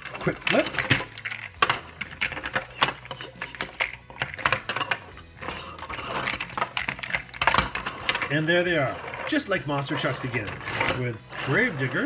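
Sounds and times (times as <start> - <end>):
plastic toy clicking and knocking: 0.0 - 8.4.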